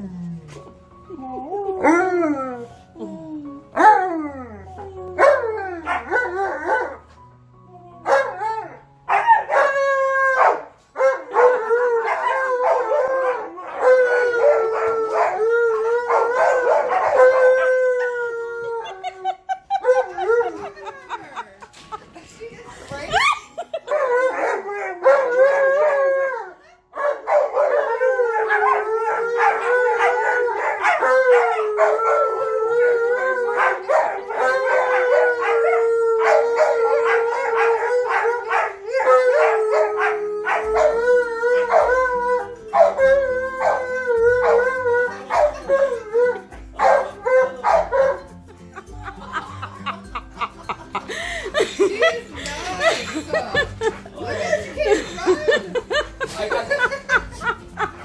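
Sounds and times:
dogs howling: 0:00.0 - 0:07.0, 0:08.0 - 0:21.1, 0:23.2 - 0:48.5.

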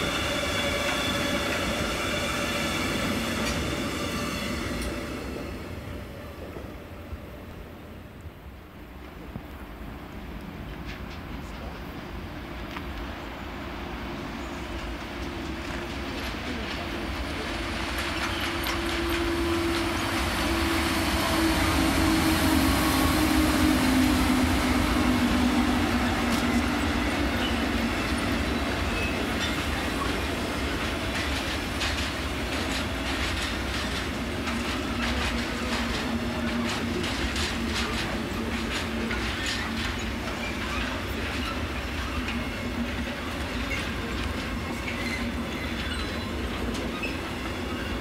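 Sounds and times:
electric locomotive hum: 0:00.0 - 0:48.0
rumble of train wagons: 0:00.0 - 0:48.0
wheels clicking over rail joints: 0:24.3 - 0:48.0.

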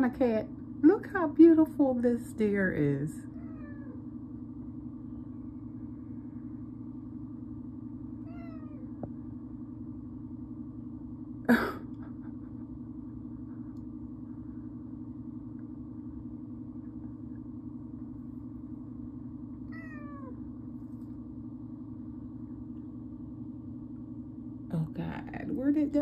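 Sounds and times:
steady low hum: 0:00.0 - 0:26.0
cat meowing: 0:03.3 - 0:04.0, 0:08.2 - 0:08.8, 0:19.7 - 0:20.4.

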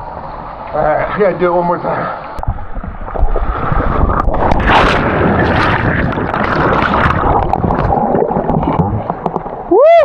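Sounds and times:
water rushing down rock slide: 0:03.1 - 0:10.0
splash into pool: 0:04.4 - 0:09.0.

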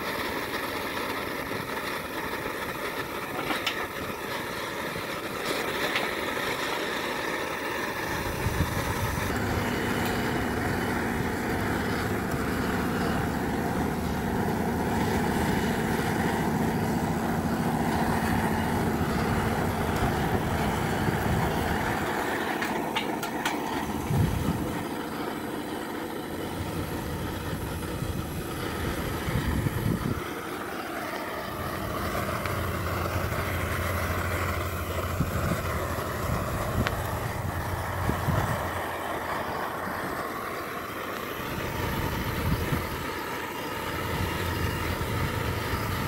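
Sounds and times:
gas burner flame: 0:00.0 - 0:46.0
wind buffeting microphone: 0:07.9 - 0:25.1, 0:26.4 - 0:30.3, 0:31.6 - 0:39.0, 0:41.4 - 0:43.2, 0:43.9 - 0:46.0.

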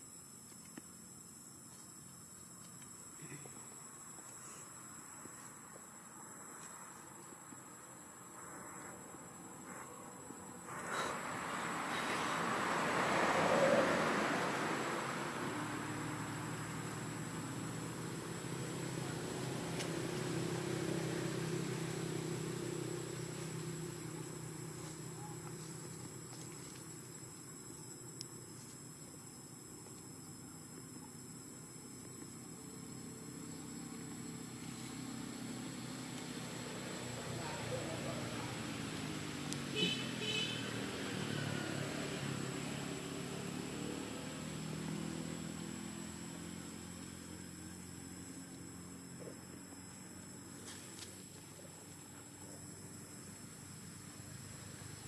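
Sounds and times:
engine humming: 0:00.0 - 0:30.1, 0:31.6 - 0:55.0
low engine hum: 0:09.1 - 0:30.4.

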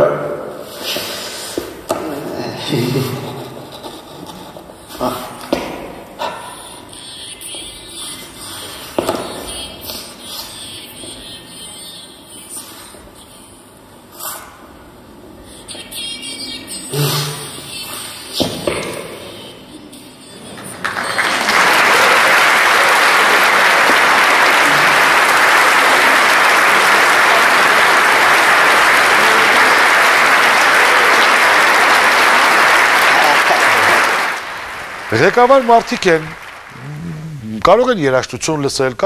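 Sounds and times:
loud applause: 0:20.5 - 0:37.6.

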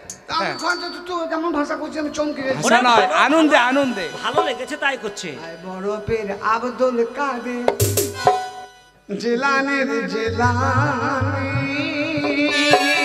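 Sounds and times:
vibrato melody: 0:01.6 - 0:09.0, 0:10.4 - 0:13.0
folk band playing: 0:02.5 - 0:09.0, 0:10.4 - 0:13.0
drums: 0:07.7 - 0:08.6, 0:10.3 - 0:13.0.

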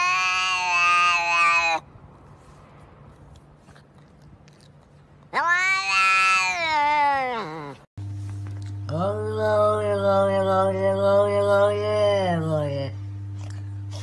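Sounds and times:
cat meowing: 0:00.0 - 0:01.9, 0:05.3 - 0:07.8.

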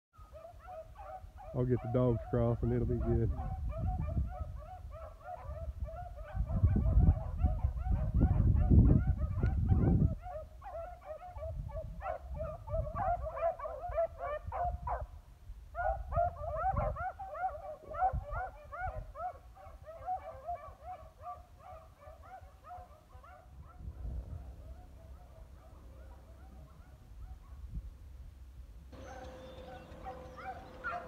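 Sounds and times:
hounds baying: 0:00.2 - 0:27.7, 0:28.9 - 0:31.0
low microphone rumble: 0:23.6 - 0:26.3.

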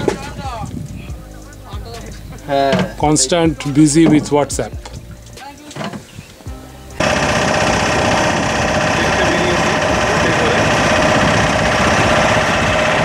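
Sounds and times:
boat engine running: 0:07.0 - 0:13.0.

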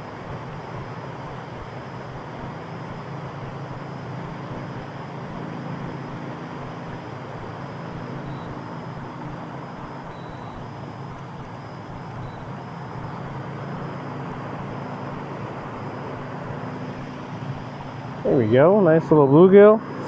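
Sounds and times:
low hum and rumble: 0:00.0 - 0:20.0
faint high peeps: 0:07.9 - 0:13.4, 0:18.3 - 0:19.8.

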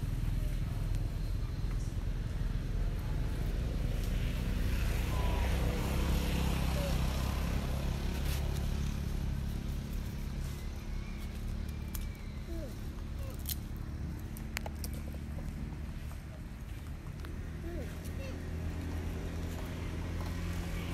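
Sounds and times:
vehicle engine humming: 0:00.0 - 0:20.9.

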